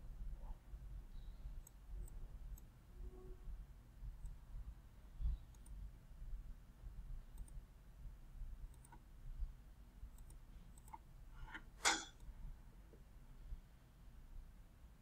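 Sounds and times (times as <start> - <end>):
computer mouse clicks: 1.6 - 2.7, 5.4 - 5.8, 7.3 - 7.6, 8.7 - 9.1, 10.1 - 12.3.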